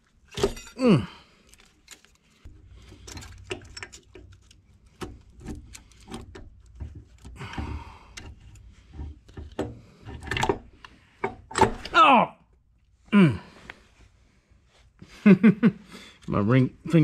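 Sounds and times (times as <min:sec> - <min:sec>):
metal parts clicking and knocking: 0:00.2 - 0:00.8, 0:01.4 - 0:11.9.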